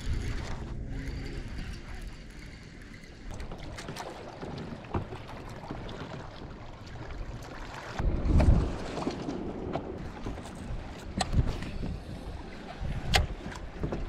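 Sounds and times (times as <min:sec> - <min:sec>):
water lapping: 0:00.0 - 0:14.0
wind on microphone: 0:08.0 - 0:14.0.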